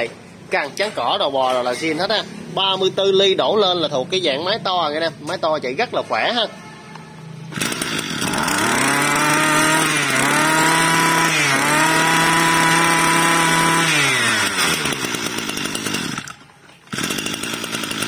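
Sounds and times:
brush cutter engine revving: 7.5 - 18.0.

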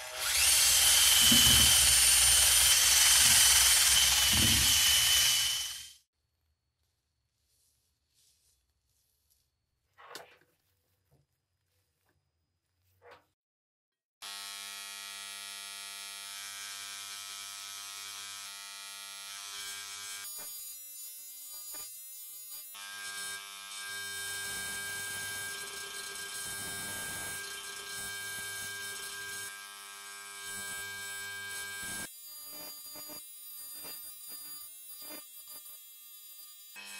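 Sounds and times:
engraving pen buzzing on cast iron: 0.0 - 5.9, 14.2 - 36.9.

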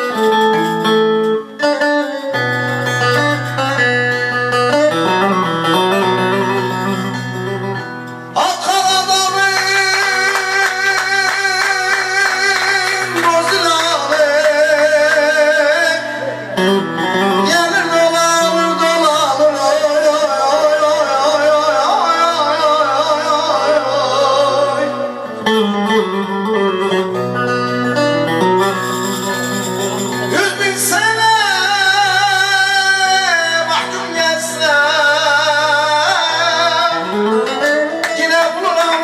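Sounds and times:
long-necked lute: 0.0 - 39.0
man singing into a microphone: 8.3 - 27.0, 29.1 - 39.0.

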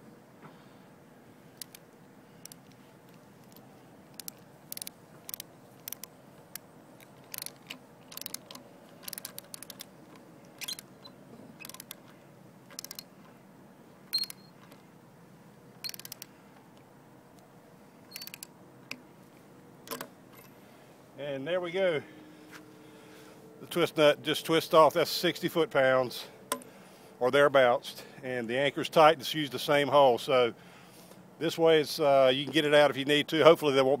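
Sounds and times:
ratchet wrench clicking: 4.1 - 6.1, 7.3 - 9.9, 11.6 - 12.0, 12.7 - 13.0, 15.8 - 16.3, 18.1 - 18.5.

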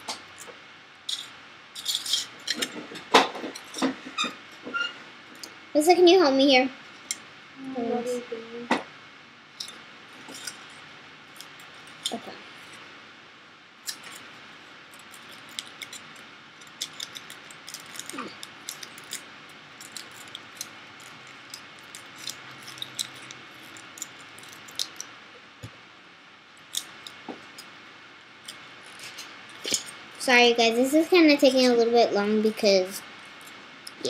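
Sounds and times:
aluminium foil crinkling: 9.6 - 12.9, 13.8 - 25.1, 28.5 - 30.0.

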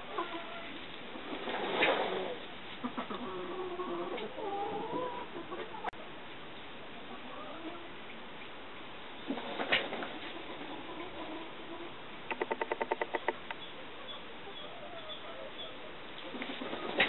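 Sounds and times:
turkeys calling: 10.3 - 17.0
sharp click: 12.3 - 13.6.

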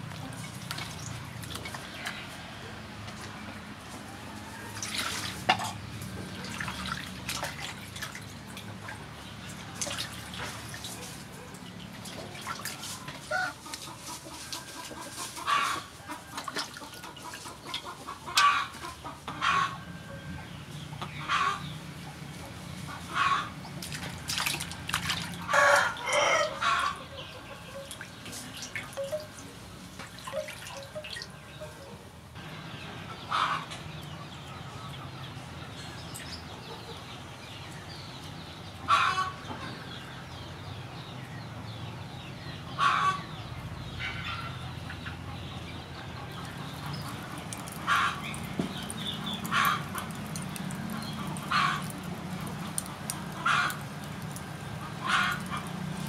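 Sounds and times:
water splashing in a basin: 0.0 - 2.5, 4.6 - 13.9, 15.4 - 18.8, 23.2 - 27.0, 27.8 - 31.5, 46.3 - 56.0
chickens clucking: 8.4 - 24.3, 25.1 - 56.0
rooster crowing: 25.5 - 27.0.

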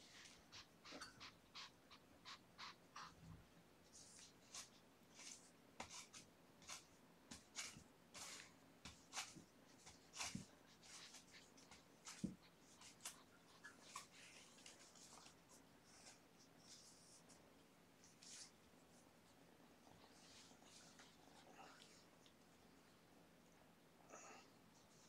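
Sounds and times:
claws scratching cardboard: 4.0 - 15.4.

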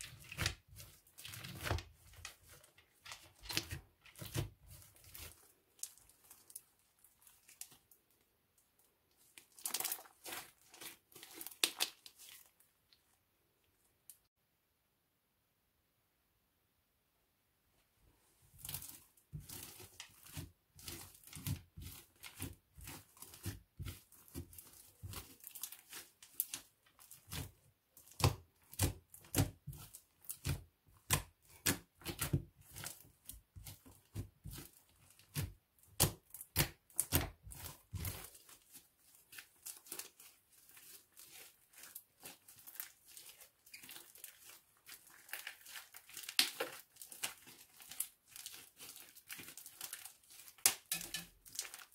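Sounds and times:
slime popping and crackling: 9.4 - 12.5, 18.6 - 51.9.

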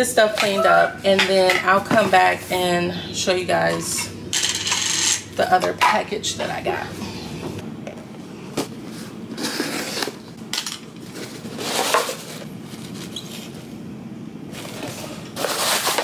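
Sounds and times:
cardboard box scraping and rustling: 14.6 - 16.0.

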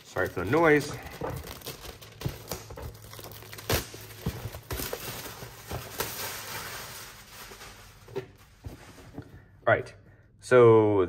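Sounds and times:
plastic wrap crinkling and tearing: 0.0 - 8.6.

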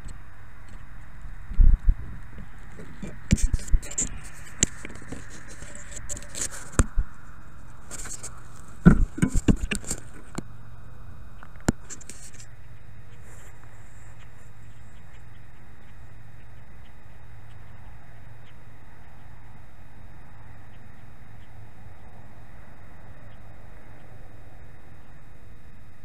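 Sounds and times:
knocks and scrapes handling drone: 2.4 - 7.0, 7.8 - 10.4, 11.7 - 12.5.

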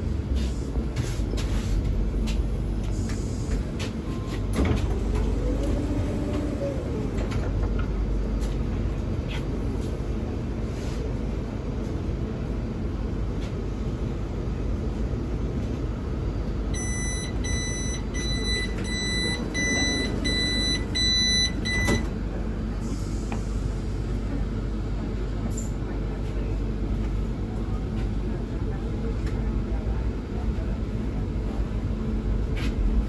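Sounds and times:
train hum: 0.0 - 33.0
door warning beeps: 16.8 - 22.1.

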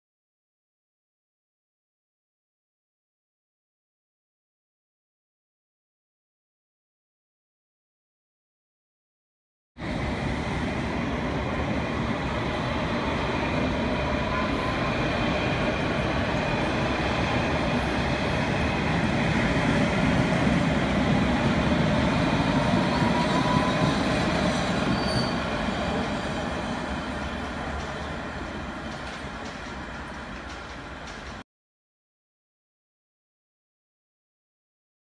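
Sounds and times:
train wheels rumbling on rail: 9.8 - 31.4
faint wheel squeal: 22.8 - 25.6.

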